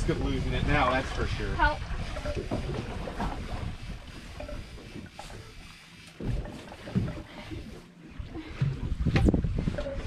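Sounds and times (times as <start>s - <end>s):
wind rumbling on microphone: 8.2s - 10.0s.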